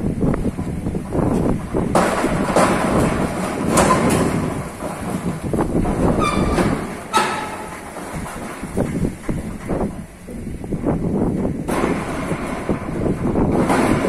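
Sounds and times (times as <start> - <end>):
metal door panels rumbling: 0.0 - 14.0
metal knocks: 0.6 - 14.0
short squeak: 6.2 - 7.7.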